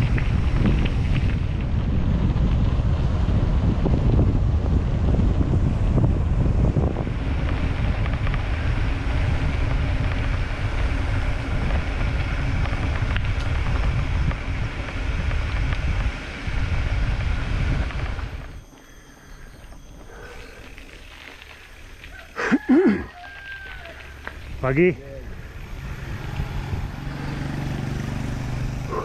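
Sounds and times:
wind buffeting microphone: 0.0 - 18.7, 23.7 - 29.0
bike tyres rumbling on trail: 0.0 - 29.0.

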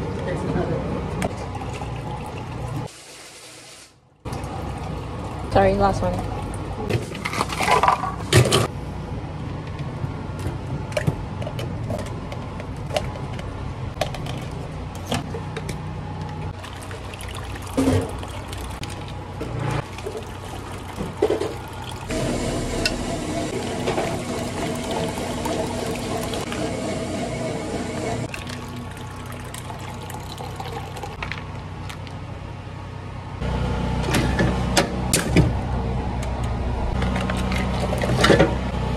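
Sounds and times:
tea pouring over ice: 16.6 - 19.2, 19.8 - 22.1, 28.3 - 31.2.

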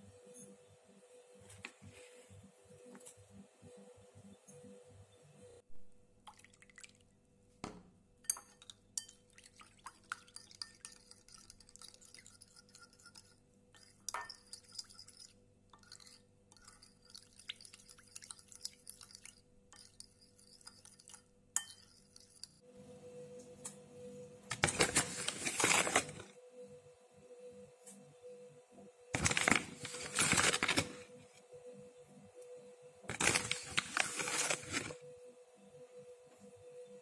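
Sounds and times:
spoon clinking against bowl: 8.2 - 22.6
spoon stirring water: 8.2 - 22.6.

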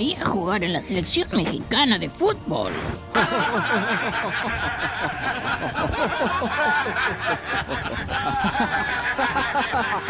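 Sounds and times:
men laughing: 3.1 - 10.0.

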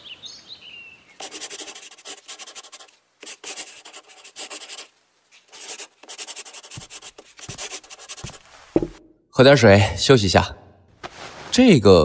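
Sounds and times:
pencil scratching on paper: 1.2 - 8.9.

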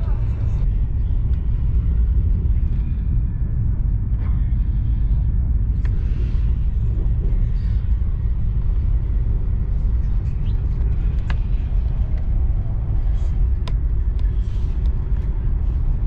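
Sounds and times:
train rumbling at speed: 0.0 - 16.0.

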